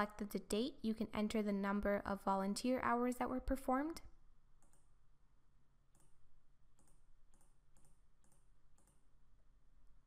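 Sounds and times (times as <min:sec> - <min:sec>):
computer mouse clicks: 0:04.6 - 0:05.0, 0:05.9 - 0:09.2.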